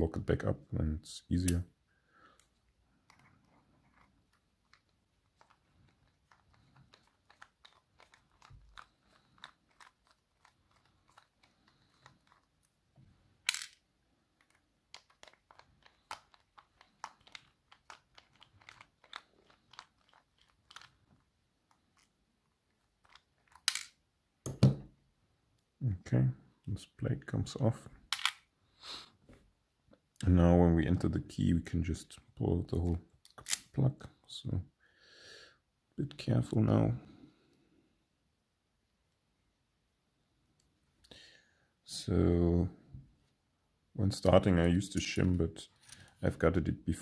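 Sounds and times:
small metal parts clicking: 0:03.1 - 0:12.7, 0:13.4 - 0:13.8, 0:14.4 - 0:21.0, 0:23.0 - 0:24.6.

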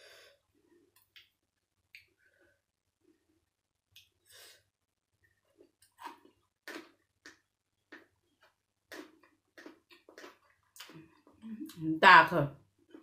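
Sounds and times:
chewing and lip smacks: 0:08.9 - 0:11.4.

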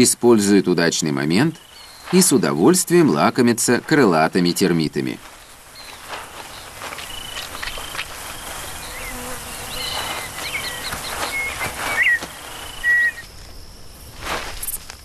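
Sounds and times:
swarm of flying insects buzzing: 0:05.2 - 0:15.0.

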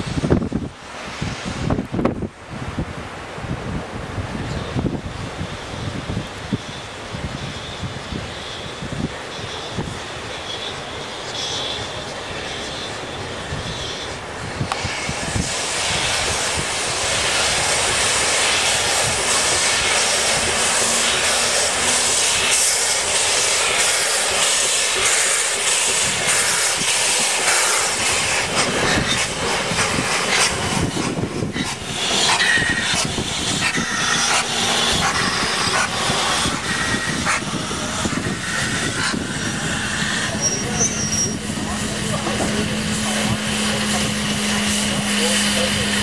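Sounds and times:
steam locomotive hissing: 0:05.3 - 0:46.0
coaches clanking and wheel noise: 0:16.9 - 0:46.0.

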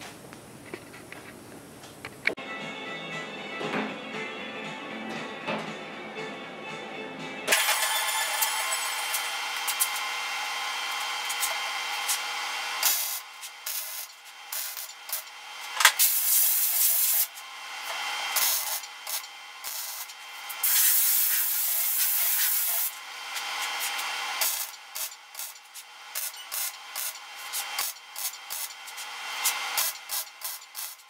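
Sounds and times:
compressed air blow gun hissing: 0:16.0 - 0:17.3, 0:18.3 - 0:31.0.

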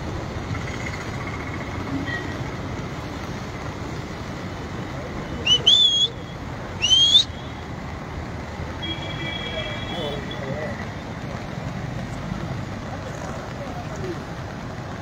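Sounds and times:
flooded river rushing: 0:00.0 - 0:15.0
short rising whistles: 0:05.4 - 0:06.2, 0:06.8 - 0:07.4.

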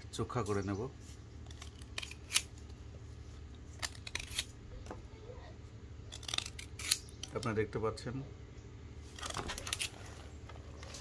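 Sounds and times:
blade cutting bamboo: 0:01.4 - 0:02.5, 0:03.8 - 0:04.6, 0:06.1 - 0:07.5.

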